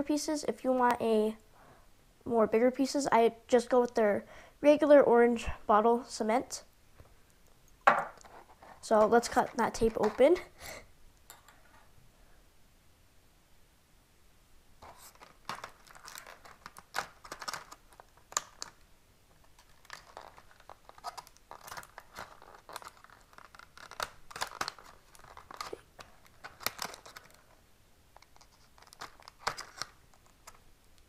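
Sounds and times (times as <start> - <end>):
plastic crinkling and crackling: 8.1 - 10.6, 14.8 - 31.0.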